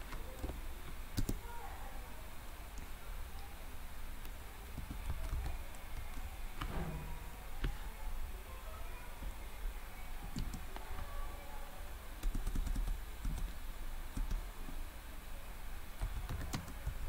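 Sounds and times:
computer keyboard typing: 0:01.2 - 0:01.4, 0:04.8 - 0:06.2, 0:12.2 - 0:13.6, 0:14.2 - 0:14.4, 0:16.0 - 0:17.0.

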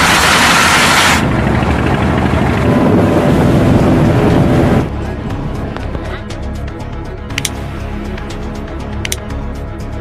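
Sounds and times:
low rumbling rush: 0:00.0 - 0:10.0.

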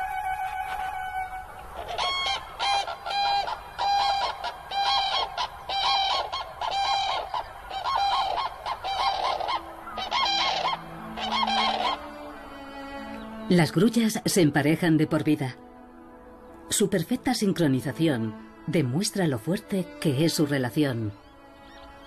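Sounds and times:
cranes trumpeting: 0:00.0 - 0:14.1, 0:17.4 - 0:22.0.

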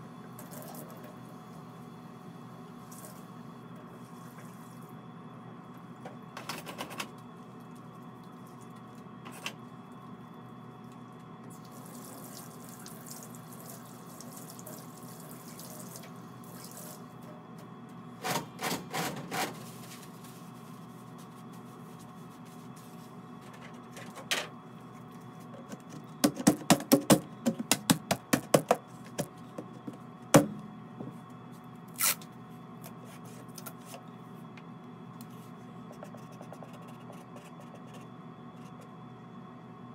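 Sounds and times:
water running from tap: 0:11.6 - 0:17.0.

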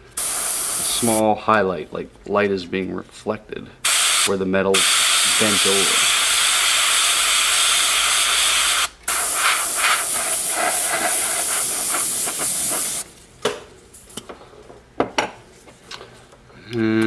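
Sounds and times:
airbrush hissing: 0:00.0 - 0:01.2, 0:03.8 - 0:13.1.

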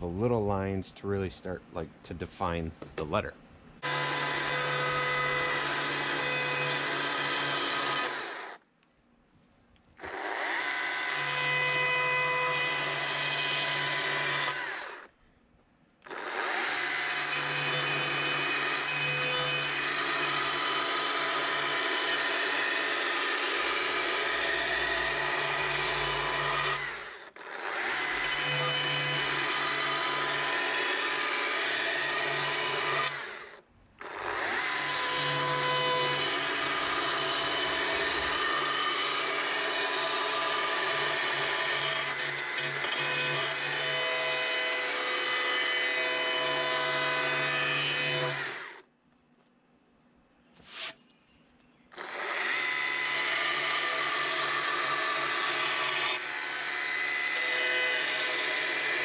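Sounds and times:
chainsaw cutting board: 0:50.6 - 0:51.0.

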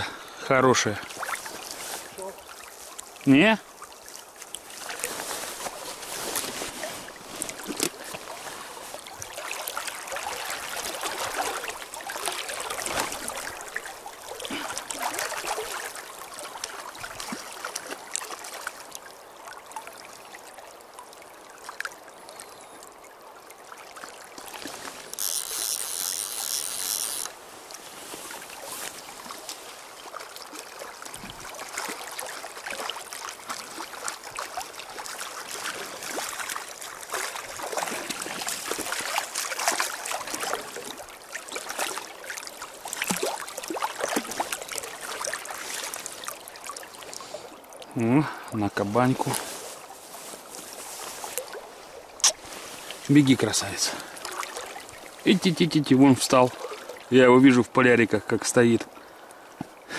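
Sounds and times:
river water flowing and lapping: 0:00.0 - 0:59.9.

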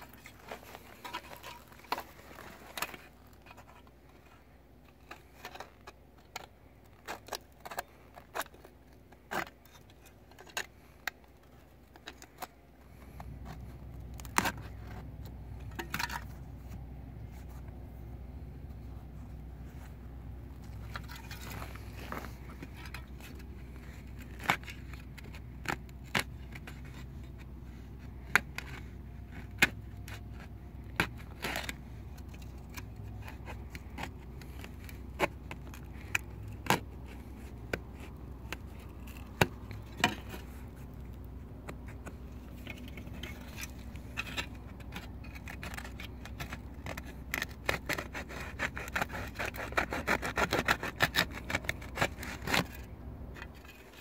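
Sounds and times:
metal scraping against leather: 0:00.0 - 0:05.9, 0:18.6 - 0:54.0.

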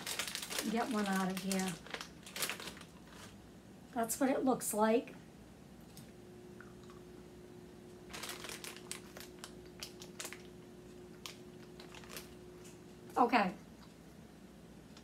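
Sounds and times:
plastic bag crinkling: 0:00.0 - 0:03.4, 0:08.0 - 0:12.8
faint steady hum: 0:00.0 - 0:15.0.

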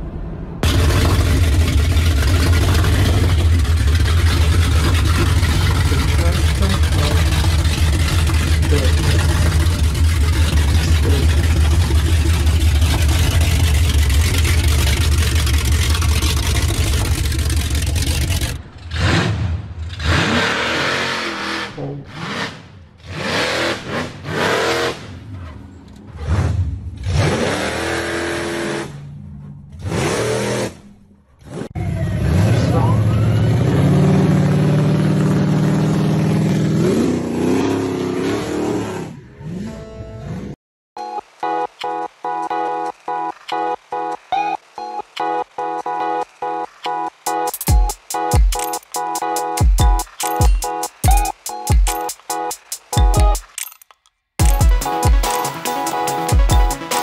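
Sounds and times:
car engine exhaust revving: 0:00.6 - 0:25.4.

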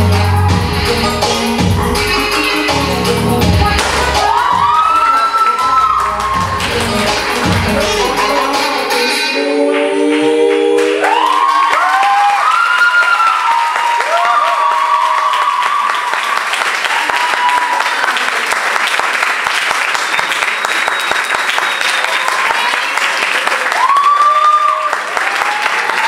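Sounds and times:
dance track: 0:00.0 - 0:11.6
audience clapping and cheering: 0:03.7 - 0:09.0, 0:09.7 - 0:26.0
whoops: 0:04.1 - 0:06.7, 0:11.0 - 0:18.2, 0:23.5 - 0:26.0.

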